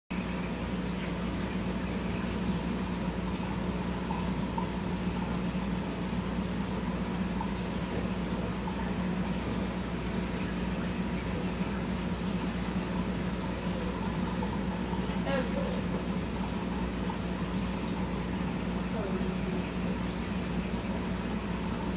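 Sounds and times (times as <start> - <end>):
aquarium pump humming: 0.1 - 21.9.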